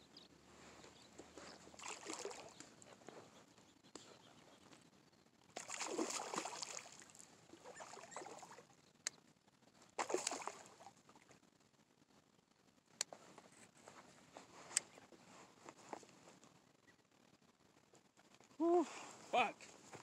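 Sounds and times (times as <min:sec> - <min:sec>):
fish splashing and thrashing: 0:01.5 - 0:02.8, 0:05.6 - 0:08.7, 0:10.0 - 0:11.0.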